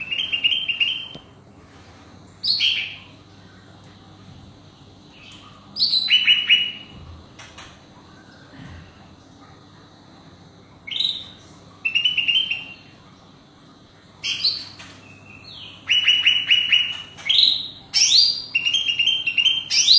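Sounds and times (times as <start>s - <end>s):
bird singing: 0.0s - 1.2s, 2.4s - 3.2s, 5.1s - 7.0s, 10.8s - 13.0s, 14.2s - 19.9s.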